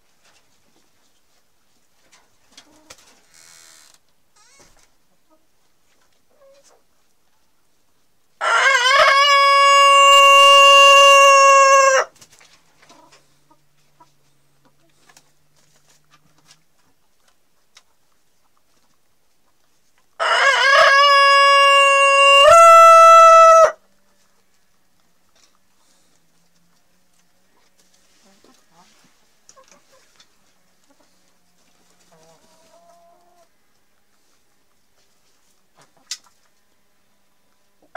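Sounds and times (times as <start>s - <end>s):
rooster crowing: 8.4s - 12.1s, 20.2s - 23.8s.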